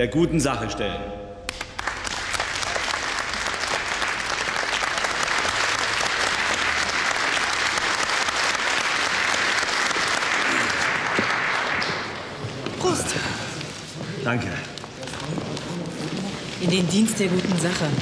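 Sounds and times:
audience applauding: 1.5s - 14.0s.

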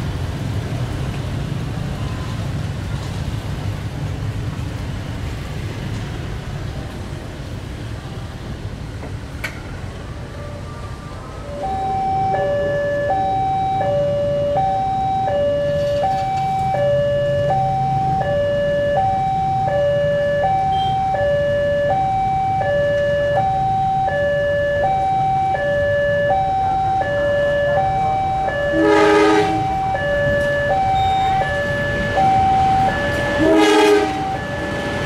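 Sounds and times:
diesel locomotive rumbling: 0.0s - 35.0s
two-tone level crossing alarm: 11.5s - 35.0s.

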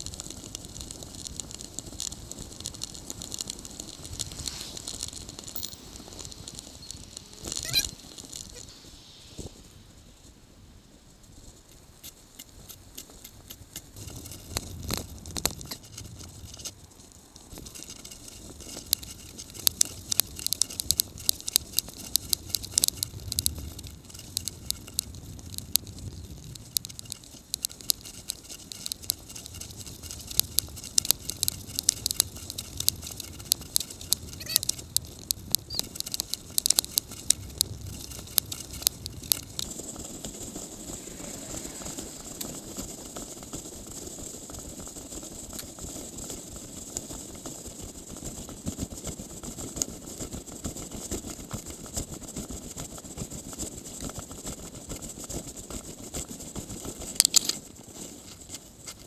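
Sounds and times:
bicycle rattling and clicking: 0.0s - 8.6s, 11.4s - 59.0s
steady hiss: 0.0s - 15.4s, 18.6s - 44.4s
low rumble: 37.4s - 43.6s.

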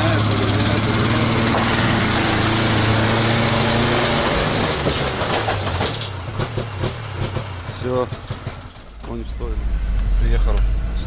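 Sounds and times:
snowmobile engine running: 0.0s - 5.6s.

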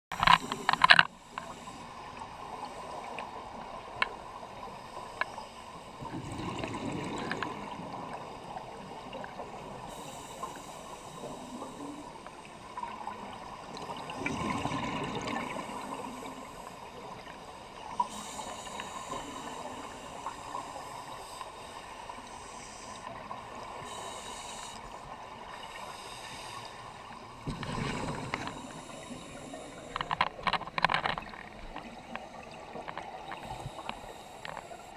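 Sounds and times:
small clicks: 0.2s - 1.6s
watery hiss: 6.7s - 12.6s, 14.5s - 30.0s, 33.4s - 34.9s.

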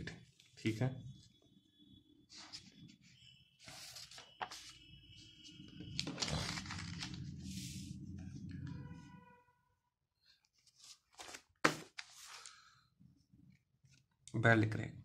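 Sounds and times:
paper pages rustling: 3.6s - 4.8s, 5.8s - 7.6s, 10.5s - 12.7s
paper crinkles: 5.9s - 7.4s, 10.6s - 12.7s.

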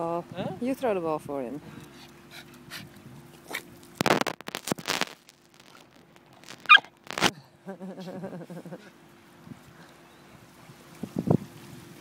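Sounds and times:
small dog barking: 6.7s - 6.9s.

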